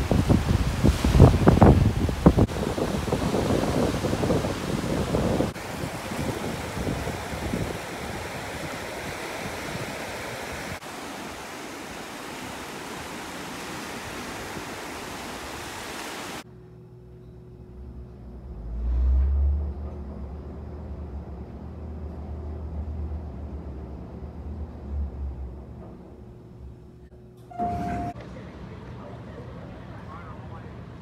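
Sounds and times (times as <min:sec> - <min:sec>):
shallow surf washing around feet: 0:00.0 - 0:16.4
waves breaking on beach: 0:00.0 - 0:16.4
elevator hum and rumble: 0:16.5 - 0:31.0.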